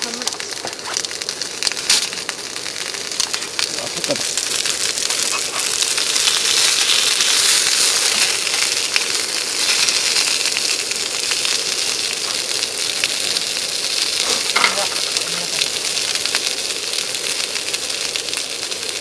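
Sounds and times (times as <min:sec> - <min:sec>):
fish sizzling in frying pan: 0:00.0 - 0:19.0
small crackles: 0:00.0 - 0:19.0.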